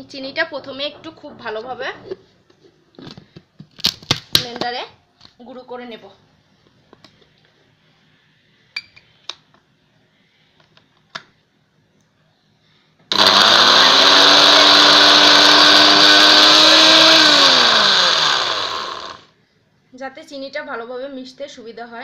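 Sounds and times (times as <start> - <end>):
blender motor grinding: 13.1 - 19.3.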